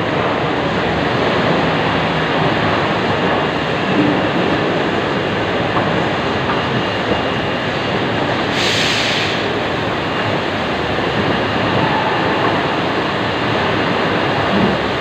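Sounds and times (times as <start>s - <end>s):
factory machinery noise: 0.0s - 15.0s
short high hiss: 8.5s - 9.4s.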